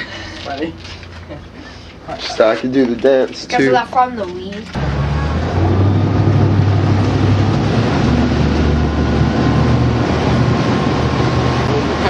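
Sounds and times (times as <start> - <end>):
motorboat engine running: 4.8 - 12.0
water rushing past: 4.8 - 12.0.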